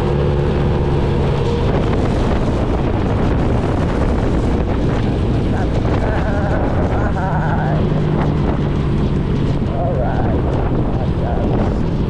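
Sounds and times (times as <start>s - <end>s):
motorcycle engine drone: 0.0s - 12.0s
wind rushing over microphone: 0.0s - 12.0s.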